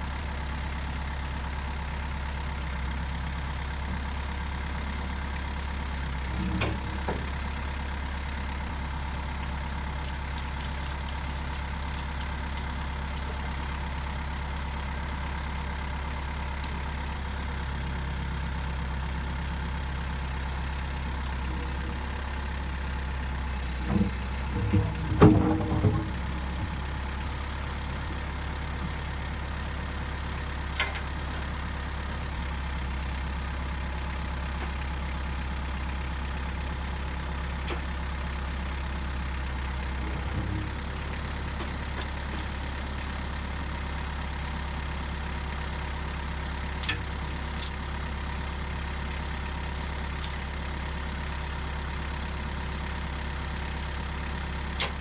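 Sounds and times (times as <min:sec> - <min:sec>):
heavy machine engine idling: 0:00.0 - 0:55.0
heavy metal knocks and clanks: 0:23.8 - 0:26.7.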